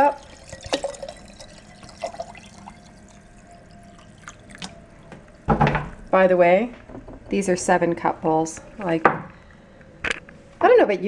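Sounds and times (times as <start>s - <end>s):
water pouring into glass jar: 0.0s - 6.2s.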